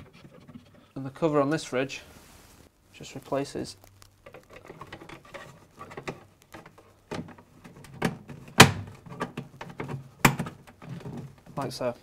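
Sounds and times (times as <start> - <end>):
plastic scraping and clicking: 3.8 - 11.7.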